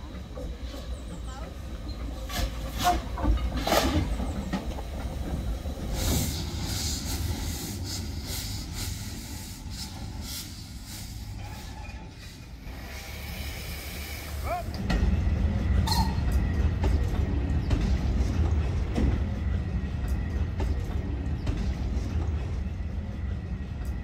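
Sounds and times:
steam locomotive engine rumbling: 0.0s - 24.0s
steam hissing: 5.0s - 14.8s.

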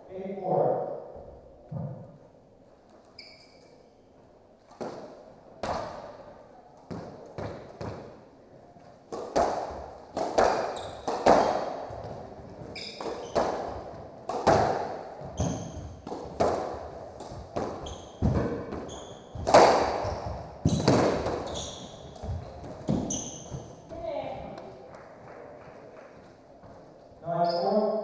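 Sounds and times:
shoe squeaks on hardwood floor: 3.0s - 3.9s, 10.7s - 11.1s, 12.7s - 13.5s, 15.2s - 16.0s, 17.7s - 23.9s, 27.3s - 27.8s
squash ball hitting rackets and walls: 4.7s - 6.2s, 6.9s - 8.2s, 9.0s - 24.0s.

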